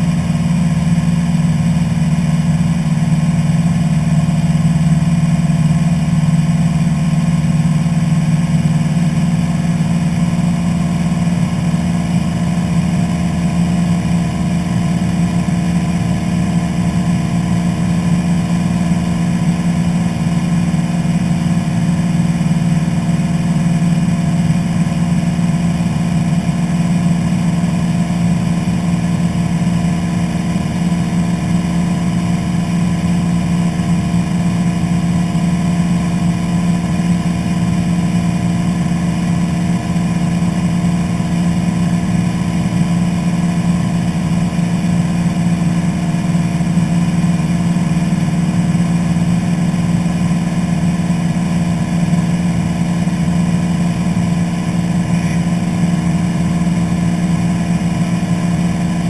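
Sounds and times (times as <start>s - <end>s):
airplane engine drone in cockpit: 0.0s - 59.0s.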